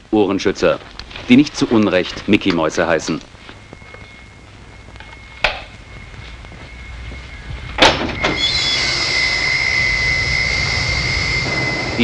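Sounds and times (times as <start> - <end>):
jet engines whining: 1.4 - 12.0
door banging open: 7.8 - 8.6.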